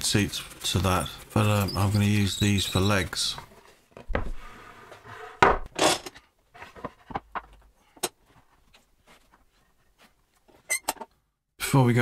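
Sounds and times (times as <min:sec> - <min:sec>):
wooden board scraping on workbench: 0:03.5 - 0:05.7.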